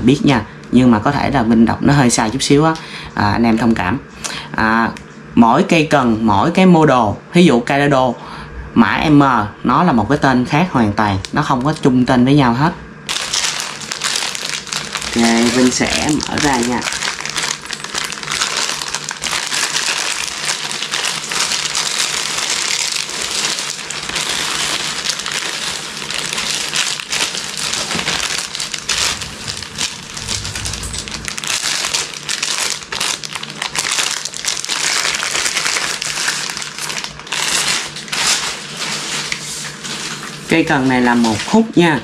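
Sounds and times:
packaging crinkling and rustling: 13.1s - 41.8s.

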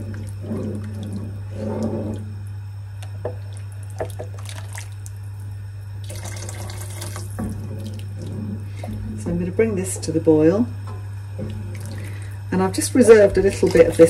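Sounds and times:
wooden spoon stirring soup: 0.0s - 5.6s, 6.7s - 14.0s
steady low hum: 0.0s - 14.0s
liquid pouring and splashing: 3.0s - 9.2s, 11.4s - 12.4s.

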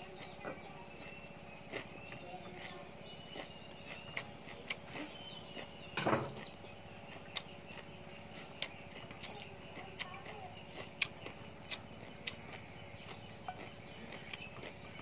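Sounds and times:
chewing leafy vegetables: 0.0s - 15.0s
mouth clicks: 7.1s - 7.9s.

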